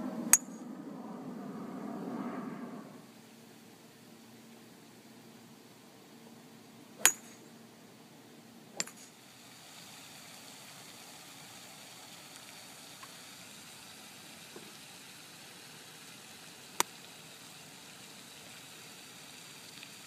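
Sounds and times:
golf club striking ball: 7.0 - 7.4, 8.8 - 9.1.

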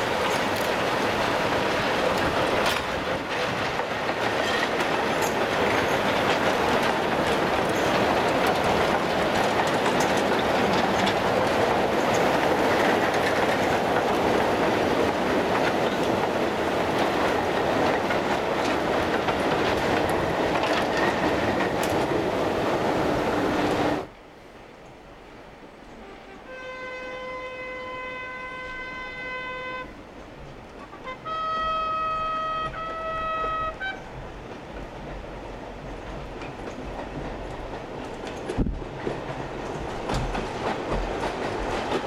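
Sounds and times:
iron wheels clattering over rail joints: 0.0 - 24.1, 32.7 - 42.0.

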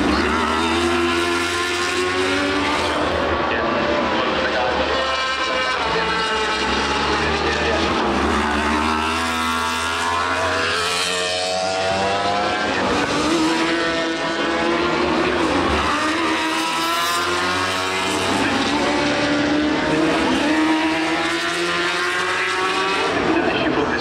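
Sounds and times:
racing motorcycles passing at high revs: 0.0 - 24.0.

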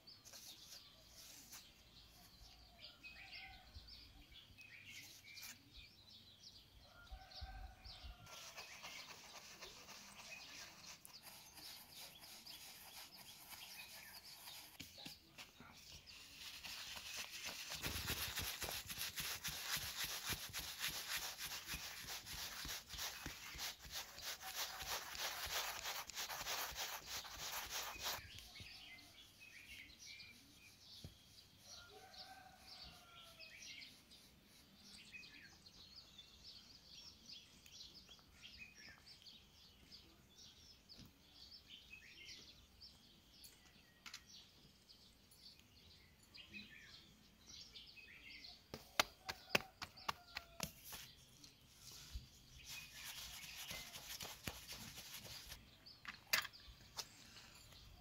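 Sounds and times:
rough scraping by hand: 8.2 - 28.4, 48.7 - 55.6.

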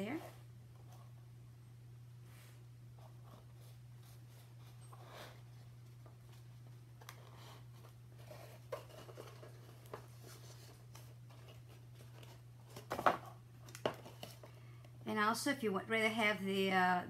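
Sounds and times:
cardboard rustling and tapping: 5.7 - 14.6.

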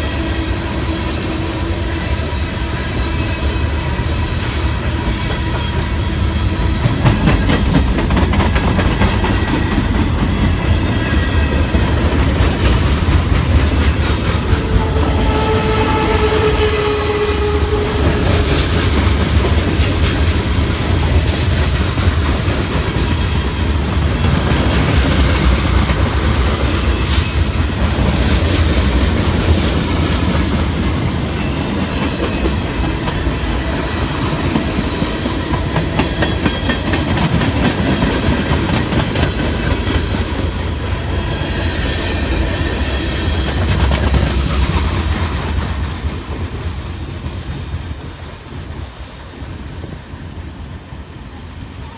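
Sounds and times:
freight cars clattering on rails: 6.6 - 15.7.

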